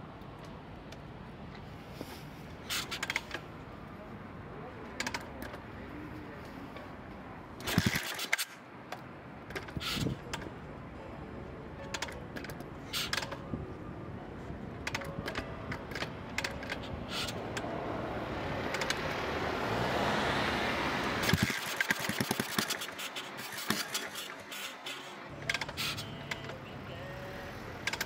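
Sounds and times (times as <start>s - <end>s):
metallic clicks and rattles: 7.6s - 10.5s, 11.8s - 13.5s, 14.8s - 17.7s, 18.7s - 19.2s, 21.2s - 26.6s
car passing: 14.6s - 28.0s.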